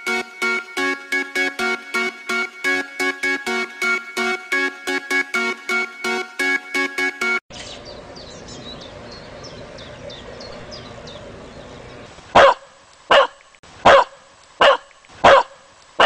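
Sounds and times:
birds chirping: 7.5s - 12.2s
dog barking: 12.4s - 15.6s.

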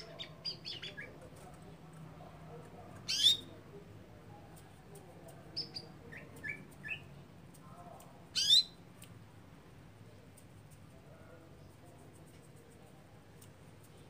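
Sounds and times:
canary chirping: 0.0s - 1.2s, 3.0s - 3.6s, 5.5s - 7.2s, 8.3s - 8.8s.

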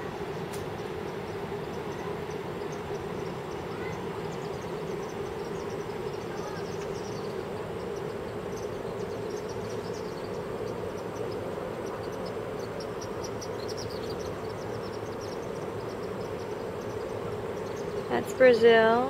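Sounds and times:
distant waterfall roar: 0.0s - 19.0s
high insect chirps: 0.0s - 19.0s.

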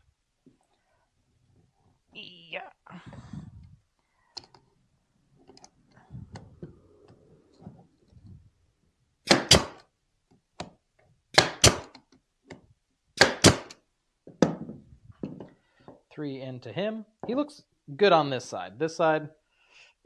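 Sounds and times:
nail gun firing: 9.3s - 9.8s, 11.4s - 12.0s, 13.2s - 13.8s.

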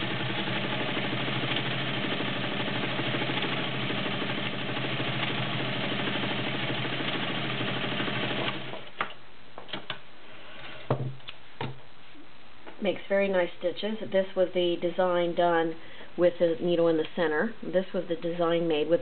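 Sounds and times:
sewing machine running: 0.0s - 8.9s.

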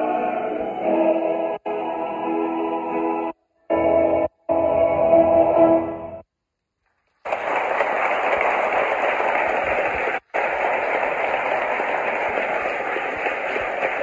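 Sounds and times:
male choir holding chord: 0.0s - 6.0s
audience applause: 6.9s - 14.0s.

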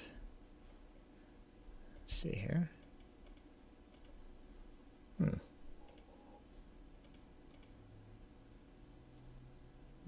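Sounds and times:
faint mouse clicks: 2.8s - 4.2s, 5.8s - 6.1s, 7.0s - 7.8s
low grunt-like voice: 5.2s - 5.5s.

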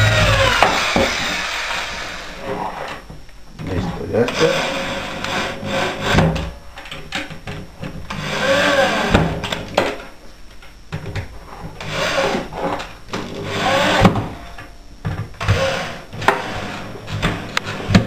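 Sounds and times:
electric drill driving screws: 0.0s - 2.4s, 8.1s - 9.4s, 11.8s - 14.4s, 15.4s - 18.0s.

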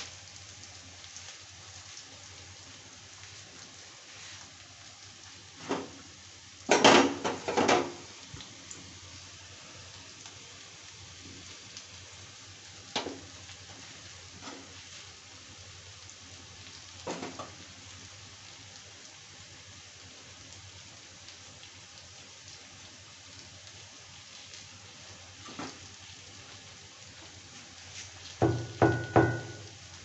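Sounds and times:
onions sizzling in oil: 0.0s - 30.0s
pan and utensils clattering: 6.7s - 8.0s.

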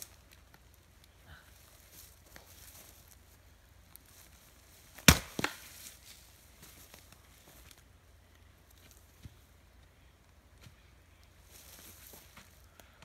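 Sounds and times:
axe chopping wood: 5.0s - 5.7s.

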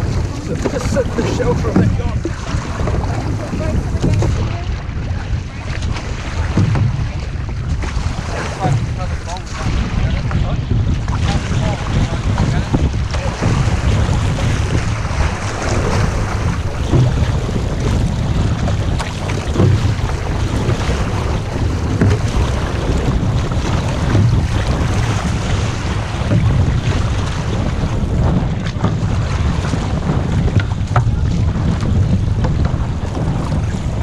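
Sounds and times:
water splashing along canoe hull: 0.0s - 34.0s
wind buffeting microphone: 0.0s - 34.0s.

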